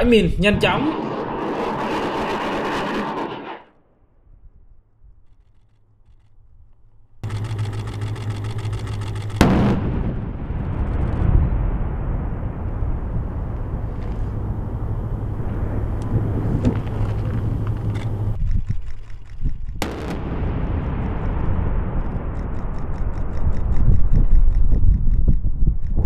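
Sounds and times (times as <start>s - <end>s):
explosion rolling rumble: 0.0s - 3.7s, 9.3s - 18.7s, 19.5s - 26.0s
sharp blast: 0.1s - 3.7s, 8.4s - 16.6s, 19.8s - 24.3s.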